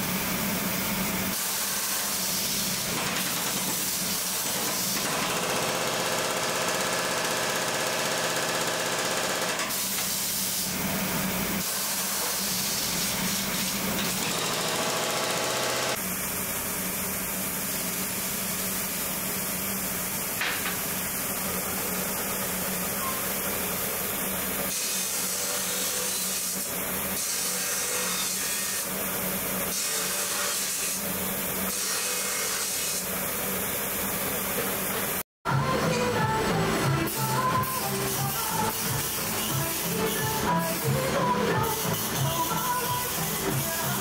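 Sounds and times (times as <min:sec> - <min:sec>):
workshop machine noise: 0:00.0 - 0:44.0
cut-off wheel cutting steel: 0:11.6 - 0:16.1, 0:24.6 - 0:33.6
music: 0:35.5 - 0:44.0.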